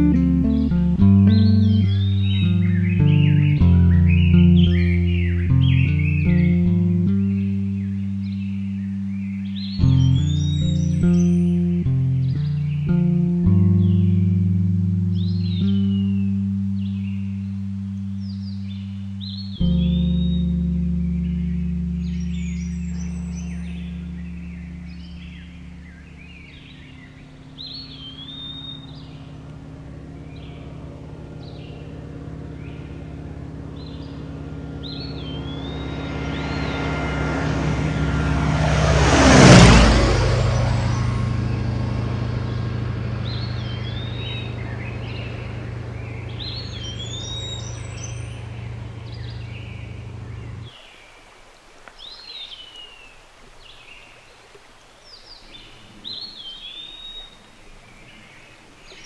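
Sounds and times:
songbirds whistling: 0:00.0 - 0:14.5, 0:15.1 - 0:37.4, 0:39.6 - 0:51.2, 0:51.9 - 0:59.0
propeller plane engine drone: 0:00.0 - 0:59.0.

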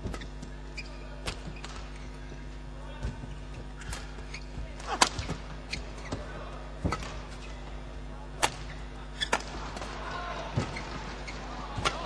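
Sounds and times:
rackets hitting shuttlecock: 0:04.8 - 0:06.2, 0:08.4 - 0:12.0.

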